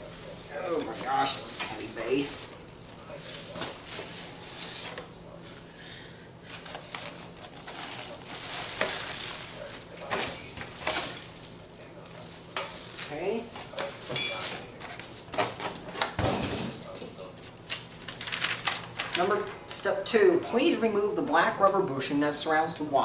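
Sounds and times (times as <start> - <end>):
plastic wrap crinkling: 0.1 - 5.0, 6.5 - 15.8, 17.7 - 19.6.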